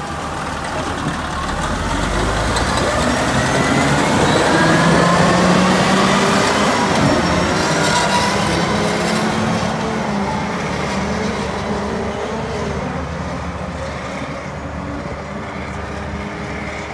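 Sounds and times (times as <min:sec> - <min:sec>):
diesel engines driving past: 0:00.0 - 0:16.9.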